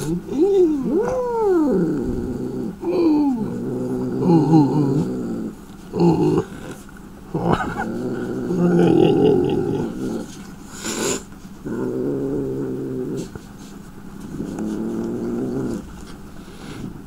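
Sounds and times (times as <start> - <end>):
cat hissing: 9.8 - 11.3
cat growling and yowling: 14.4 - 15.9.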